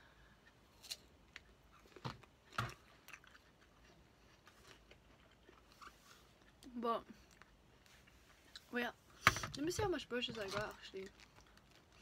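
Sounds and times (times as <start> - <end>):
person chewing fruit: 0.2 - 8.7.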